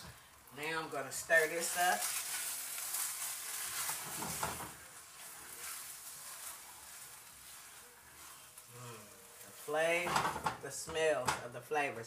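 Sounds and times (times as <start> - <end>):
rice sizzling in skillet: 0.0 - 10.9
spoon scraping skillet: 1.6 - 10.8.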